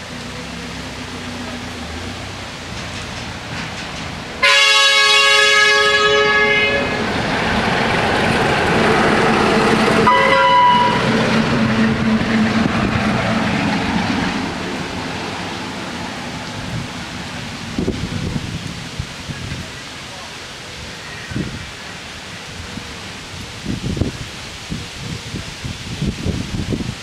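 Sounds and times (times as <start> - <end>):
train engine and wheels rumbling: 0.0 - 27.0
locomotive horn blasts: 4.4 - 7.2, 10.0 - 11.2.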